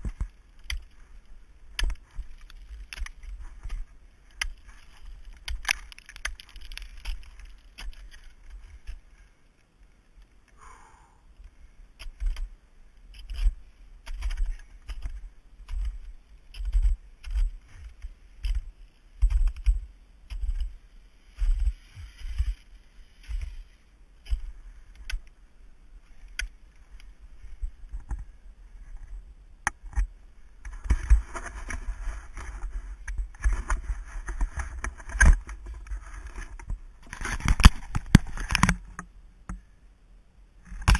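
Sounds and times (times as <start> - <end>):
camera handling rustling and knocking: 29.0 - 39.0.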